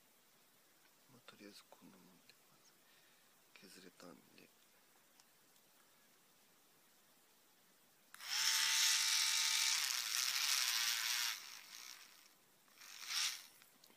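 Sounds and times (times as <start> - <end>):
rotary tool motor whining: 8.2 - 13.6.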